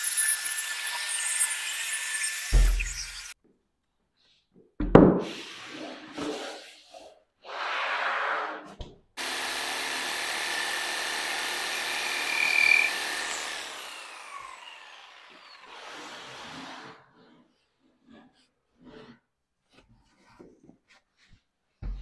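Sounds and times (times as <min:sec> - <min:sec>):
power tool motor running: 0:00.0 - 0:03.4, 0:09.2 - 0:17.0
motor spinning down whine: 0:11.8 - 0:15.7
scraping rubbing sounds: 0:16.4 - 0:22.0.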